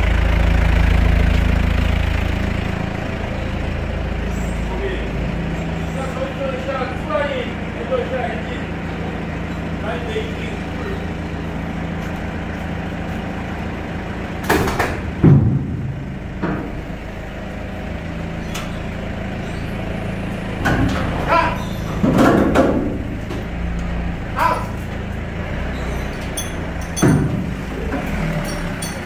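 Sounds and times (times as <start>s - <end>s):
forklift engine running: 0.0s - 29.0s
metal clanks and scrapes: 25.8s - 29.0s.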